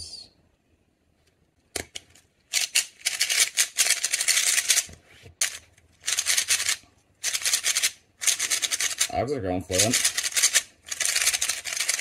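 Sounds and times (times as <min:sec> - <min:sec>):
plastic puzzle cube clattering: 0:01.8 - 0:09.1, 0:09.8 - 0:12.0.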